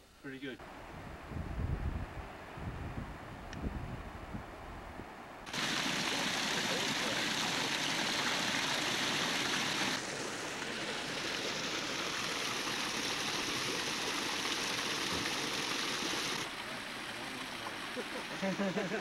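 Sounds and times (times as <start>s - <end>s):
small cascade pouring into pool: 5.5s - 19.0s
stream water over rocks: 5.5s - 19.0s.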